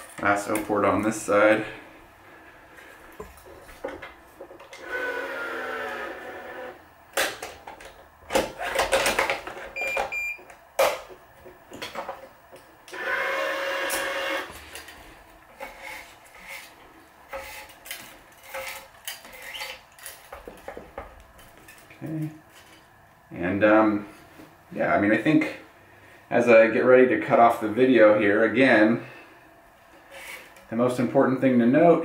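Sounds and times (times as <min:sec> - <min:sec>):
stringing machine motor pulling: 0:04.6 - 0:06.8, 0:12.9 - 0:20.3.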